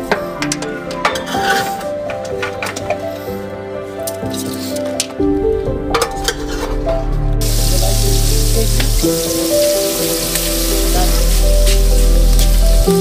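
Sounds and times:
background music: 0:00.0 - 0:13.0
onions sizzling in pot: 0:07.4 - 0:13.0.

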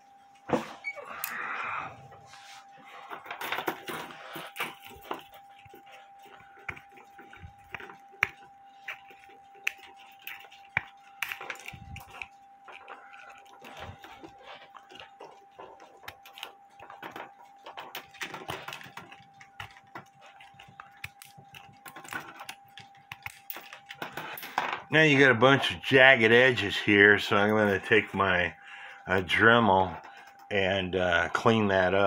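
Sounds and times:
faint steady tone: 0:00.0 - 0:32.0.

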